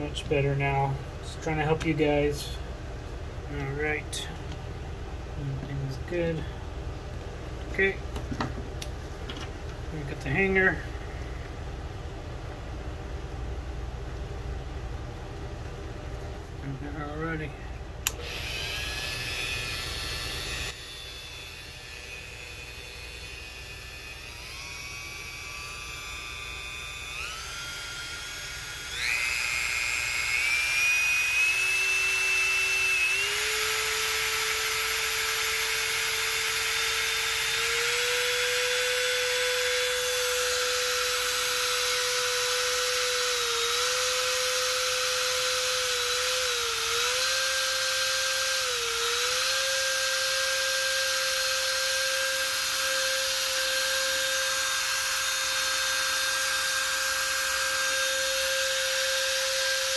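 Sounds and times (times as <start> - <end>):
rotary tool motor whining: 18.1 - 59.9.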